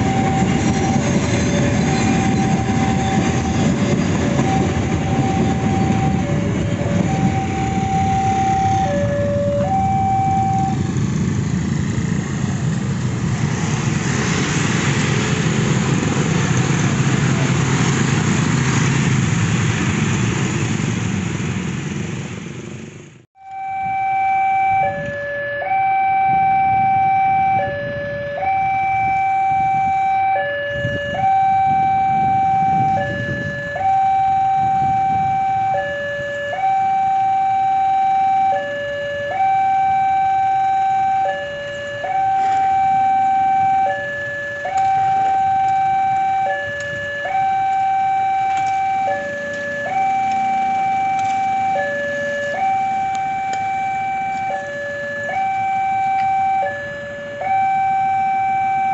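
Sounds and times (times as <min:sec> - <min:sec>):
two-tone level-crossing alarm: 0:00.0 - 0:10.9, 0:23.4 - 0:58.9.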